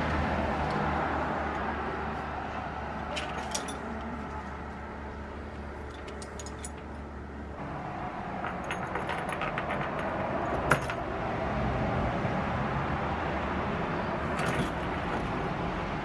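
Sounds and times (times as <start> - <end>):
metal chain jangling: 3.2 - 4.0, 5.9 - 6.9.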